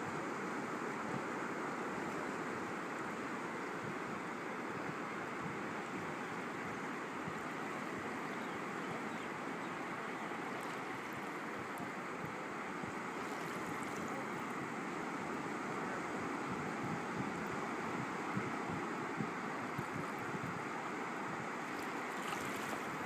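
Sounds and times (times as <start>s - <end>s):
shallow water washing over shore: 9.4s - 23.0s.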